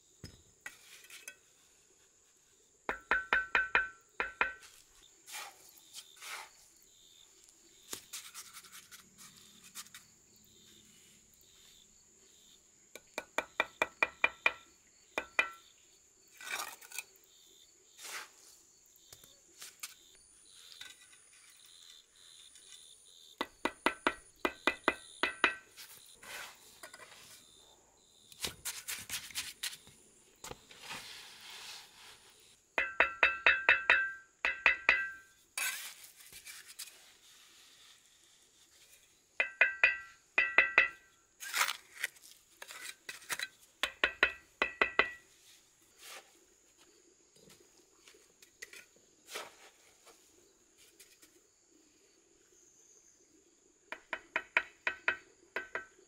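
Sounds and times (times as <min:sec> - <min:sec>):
trowel tapping bricks: 0:02.9 - 0:04.7, 0:13.0 - 0:14.6, 0:15.2 - 0:15.7, 0:23.4 - 0:25.8, 0:32.8 - 0:35.8, 0:39.4 - 0:41.6, 0:42.6 - 0:45.2, 0:53.9 - 0:56.0
trowel scraping mortar: 0:04.7 - 0:06.7, 0:35.0 - 0:39.1, 0:41.4 - 0:43.6.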